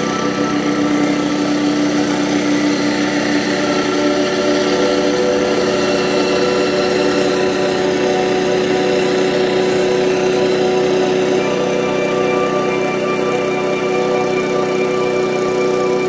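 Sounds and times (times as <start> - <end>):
combine harvester engine droning: 0.0 - 16.0.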